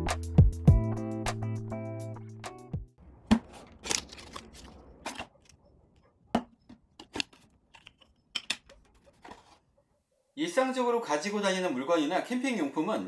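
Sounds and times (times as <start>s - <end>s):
cardboard box and plastic tray handled: 6.7s - 8.1s, 8.7s - 9.6s.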